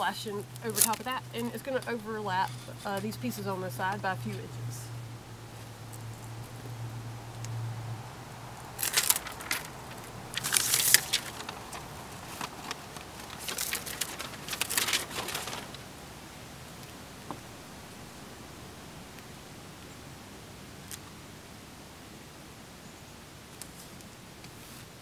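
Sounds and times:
flashing tape crackling: 0.0 - 19.3
low hum: 0.0 - 22.4.

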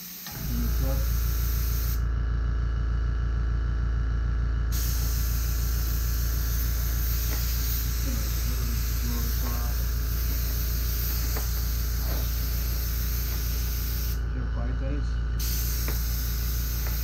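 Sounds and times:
air compressor running: 0.0 - 17.0.

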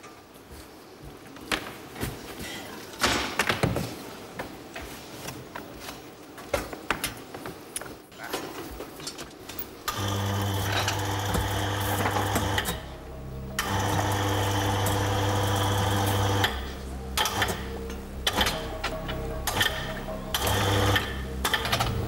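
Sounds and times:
jackhammer running: 9.9 - 12.9, 13.6 - 22.0
scattered clicks and knocks: 17.2 - 22.0.

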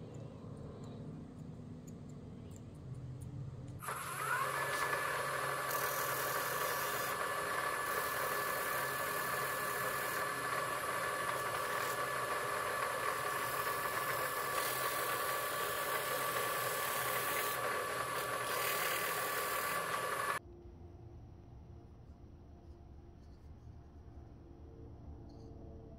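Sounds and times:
drill press whine: 3.8 - 20.4
sandpaper hissing on wood: 3.8 - 20.4.

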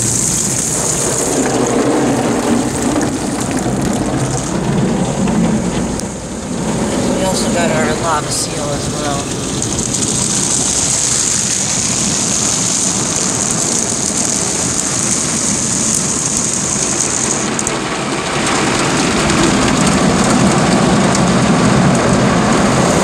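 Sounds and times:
car wash water spraying: 0.0 - 23.0
high hiss: 6.1 - 17.6
deep rinse spray: 6.8 - 17.5.

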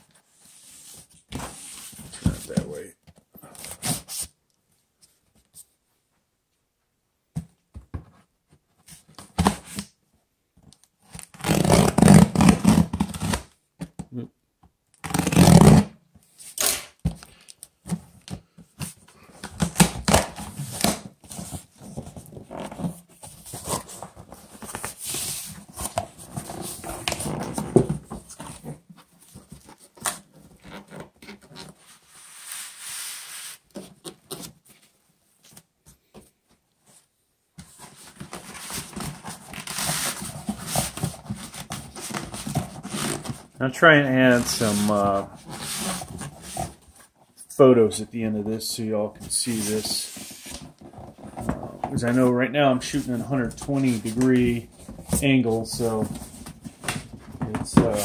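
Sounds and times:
packing tape ripping: 11.2 - 13.4, 15.0 - 15.9, 16.6 - 17.0
cardboard scraping and rustling: 37.6 - 43.6, 44.3 - 47.2, 49.1 - 58.0.

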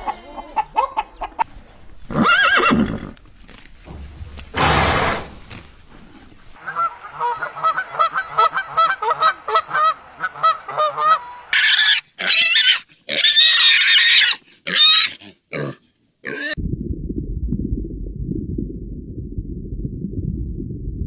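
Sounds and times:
geese honking: 6.6 - 12.0
pigs squealing: 10.8 - 16.6.

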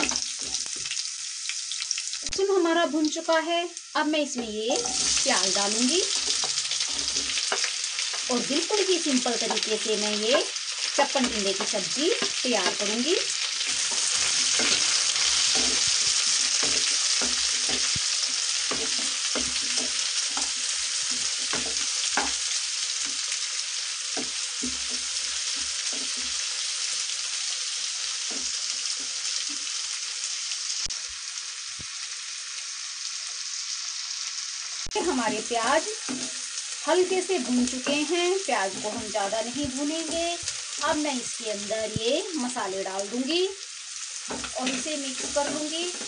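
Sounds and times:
onions sizzling in hot oil: 0.0 - 46.0
wooden spatula scraping a pan: 4.4 - 9.9, 10.8 - 23.2, 24.2 - 26.5, 35.0 - 40.8, 44.2 - 46.0.

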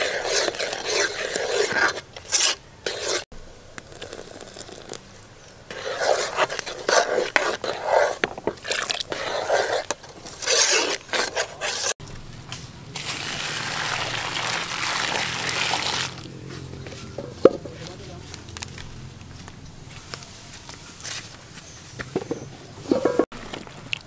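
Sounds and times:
spoon scraping metal pot: 0.0 - 3.2, 5.7 - 12.0
thick liquid pouring: 3.8 - 5.0, 13.0 - 16.2.

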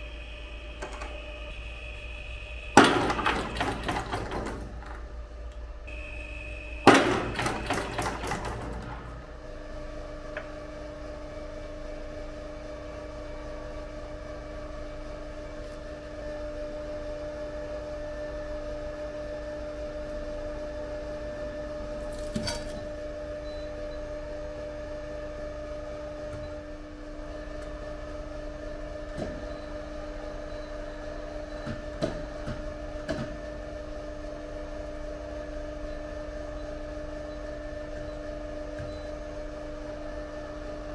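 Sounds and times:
testing machine two-tone hum: 0.0 - 12.4, 23.0 - 40.9.

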